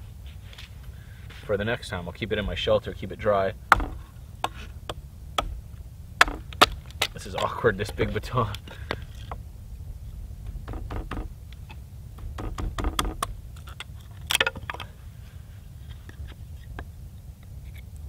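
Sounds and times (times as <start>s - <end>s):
low steady rumble: 0.0s - 18.0s
knife batoning wood: 3.7s - 8.2s.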